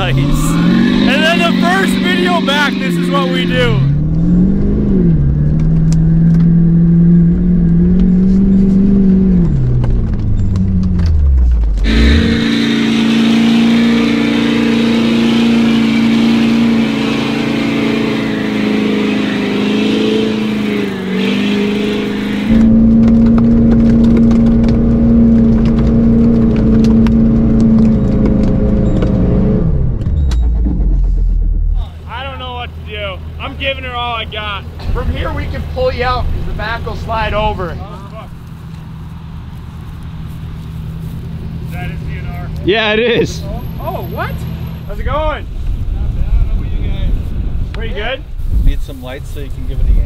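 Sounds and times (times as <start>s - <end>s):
tires spinning in mud: 0.0s - 31.1s
truck engine revving: 0.0s - 50.0s.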